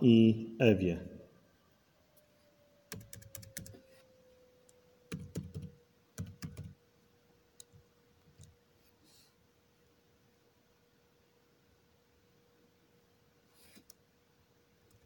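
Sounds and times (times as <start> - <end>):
faint steady hum: 0.0 - 15.0
typing on computer keyboard: 2.9 - 3.8, 5.1 - 6.8.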